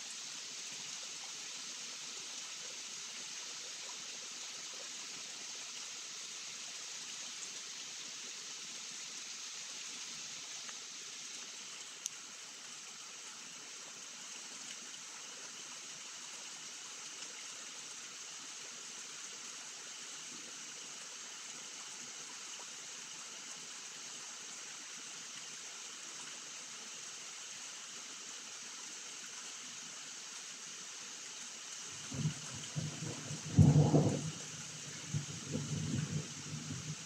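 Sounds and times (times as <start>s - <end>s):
rain falling: 31.2s - 37.0s.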